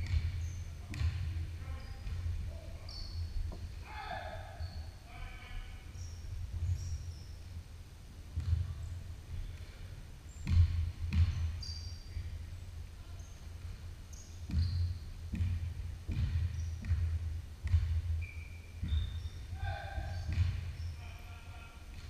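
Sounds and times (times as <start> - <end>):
basketball bouncing on wooden floor: 0.0 - 3.7, 8.4 - 8.8, 10.4 - 11.9, 14.4 - 20.9
sneakers squeaking: 0.0 - 7.4, 8.4 - 12.6, 13.2 - 22.0.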